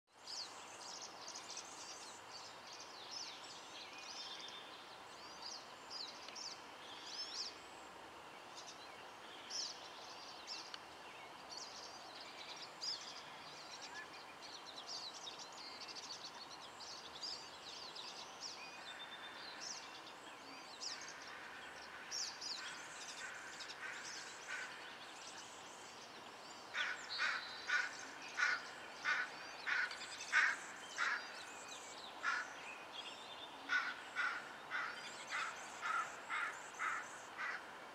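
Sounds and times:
birds chirping and peeping: 0.3 - 7.6, 8.2 - 37.7
harsh bird calls: 26.7 - 31.6, 33.6 - 37.7.

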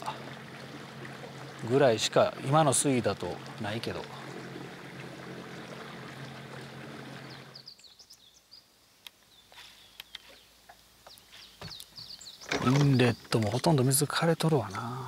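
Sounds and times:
electric trolling motor humming: 0.0 - 7.7
bird chirps: 7.1 - 8.7, 9.3 - 13.8.

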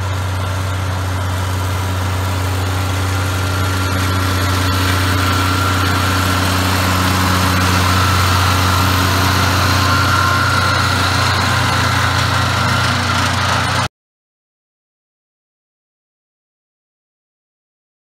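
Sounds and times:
high whine: 0.0 - 13.9
tractor diesel engine under load: 0.0 - 13.9.

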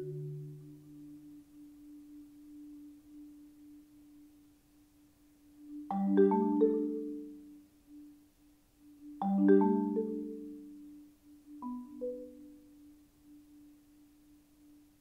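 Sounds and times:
marimba playing: 5.9 - 7.5, 9.2 - 11.0, 11.6 - 12.7.

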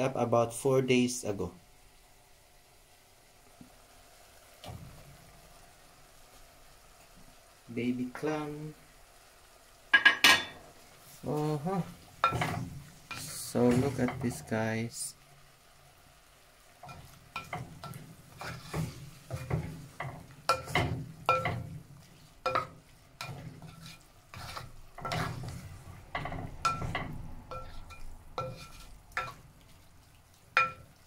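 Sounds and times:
wet churning sauce: 16.8 - 31.0.

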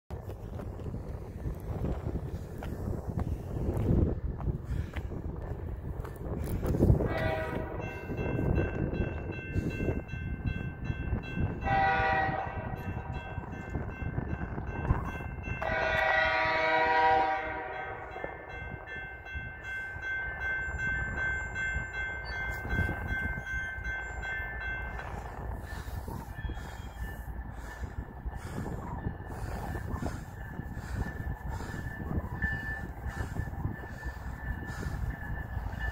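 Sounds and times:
locomotive air horn: 7.0 - 7.9, 11.6 - 12.9, 15.6 - 18.4
crossing signal bell ringing: 7.0 - 28.0, 28.9 - 35.9.

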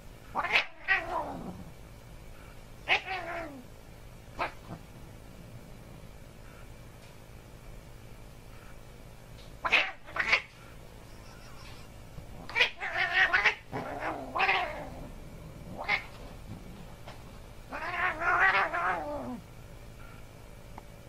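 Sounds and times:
cat yowling: 0.4 - 1.4, 9.6 - 10.5, 12.5 - 15.0, 17.7 - 19.4.

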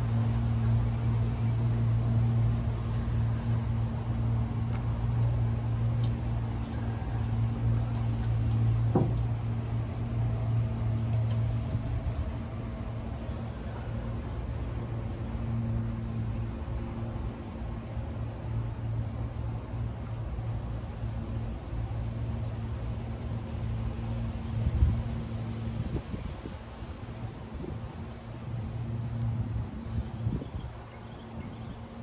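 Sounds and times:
boat engine humming: 0.0 - 32.0
brief knock: 8.9 - 9.2.

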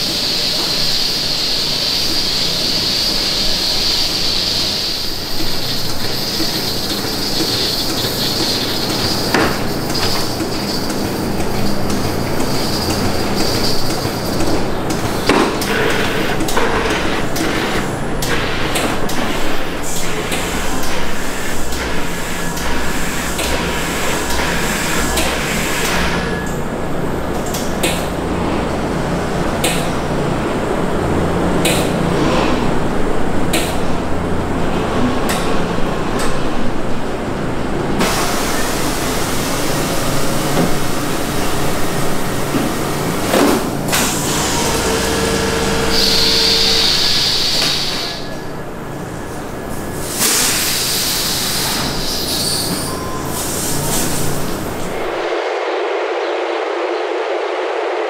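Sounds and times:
machinery running: 0.0 - 32.2, 37.4 - 58.0.

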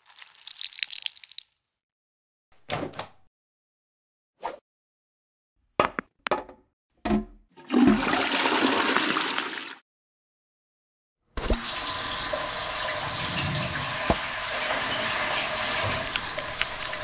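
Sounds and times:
toilet flushing: 7.5 - 9.8, 11.6 - 17.0.

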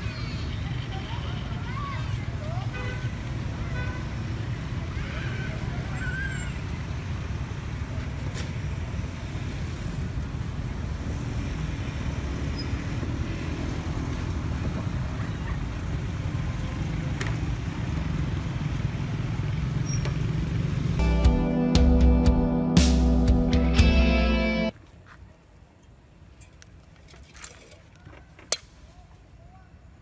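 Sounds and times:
traffic rumble: 0.0 - 21.2.

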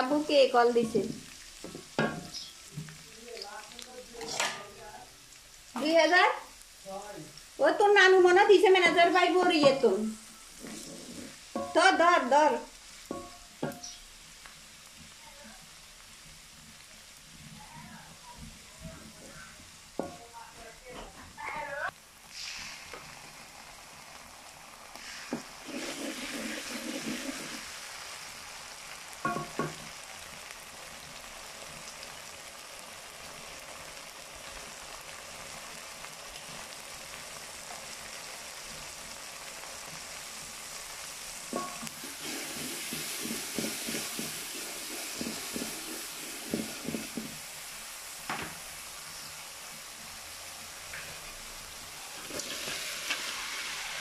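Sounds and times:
onions sizzling in oil: 0.0 - 54.0
sharp knocks on pan: 1.1 - 2.9, 13.1 - 14.0, 29.2 - 29.9, 48.3 - 48.6
wooden spatula scraping pan: 9.0 - 11.9, 25.0 - 27.6, 41.5 - 47.4.

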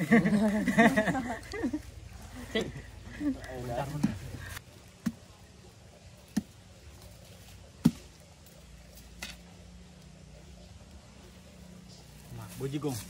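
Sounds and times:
machete chopping: 6.3 - 6.6, 7.8 - 8.2.

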